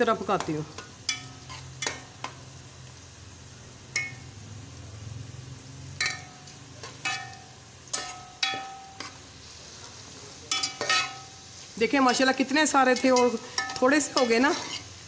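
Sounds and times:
faint frying sizzle: 0.0s - 15.0s
metal spoon clinking on pot: 0.8s - 2.3s, 3.9s - 4.3s, 6.0s - 9.2s, 10.5s - 11.4s, 12.0s - 14.9s.

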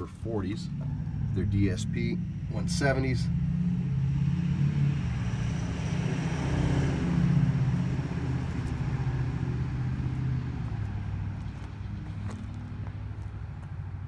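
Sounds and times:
engine idling: 0.0s - 3.9s, 7.5s - 14.0s.

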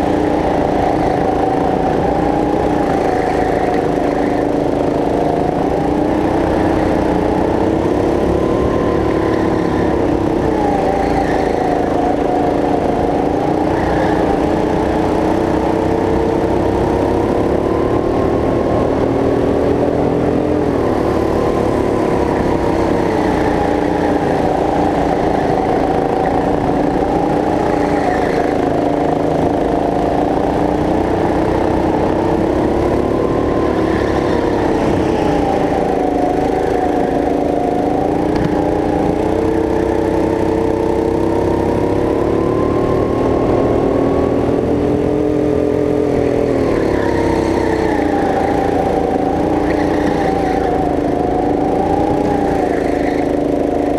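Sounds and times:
go-kart engine revving: 0.0s - 53.9s.

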